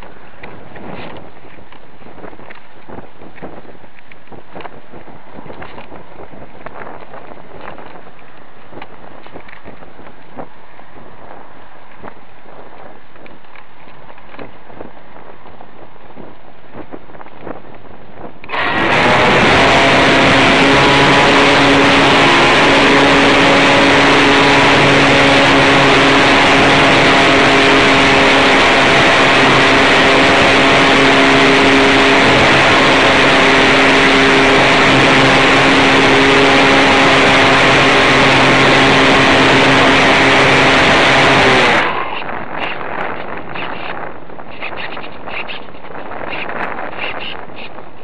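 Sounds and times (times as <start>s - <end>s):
wind noise: 0.0s - 48.0s
model plane electric motor hum: 18.5s - 43.6s
propeller wash rushing: 18.5s - 44.1s.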